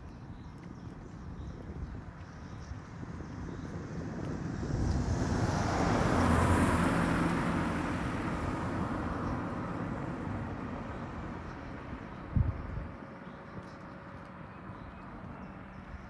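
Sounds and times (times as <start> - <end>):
vehicle passing by: 3.2 - 12.9.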